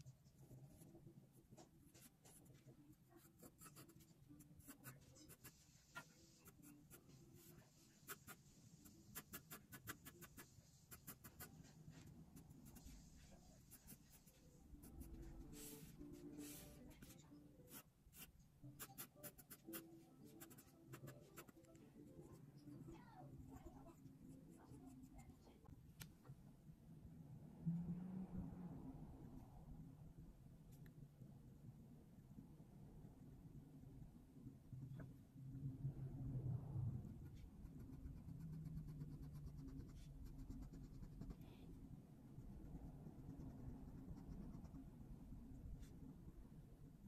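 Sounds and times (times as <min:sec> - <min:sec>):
pencil scratching on paper: 0:01.6 - 0:25.3, 0:37.1 - 0:41.5.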